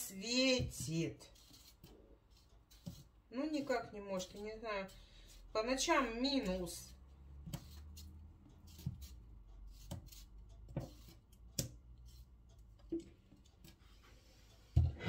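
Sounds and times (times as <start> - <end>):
knife cutting on a board: 0.5 - 5.4, 6.4 - 12.3.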